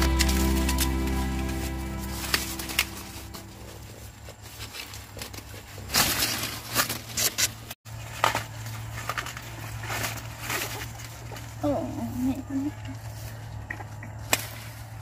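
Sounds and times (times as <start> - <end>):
corn ears snapping: 0.0 - 1.3, 13.7 - 15.0
corn leaves rustling: 0.0 - 15.0.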